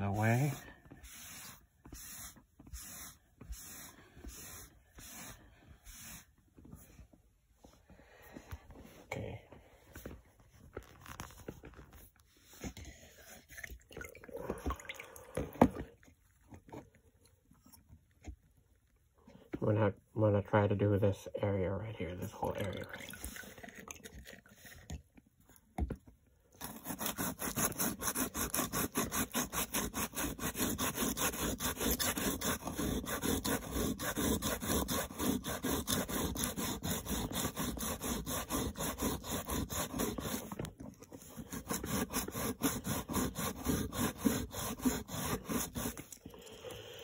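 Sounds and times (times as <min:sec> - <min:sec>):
foil scrubbing metal: 0:00.0 - 0:05.3, 0:26.6 - 0:40.6, 0:41.2 - 0:46.1.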